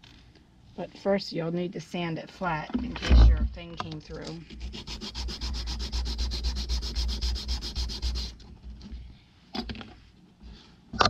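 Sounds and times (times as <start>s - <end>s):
wood rubbed on sanding pad: 4.6s - 8.4s.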